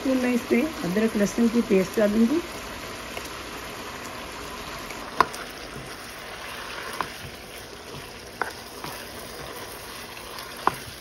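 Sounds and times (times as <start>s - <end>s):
food sizzling in hot oil: 0.0s - 11.0s
spatula knocking against pan: 10.6s - 11.0s.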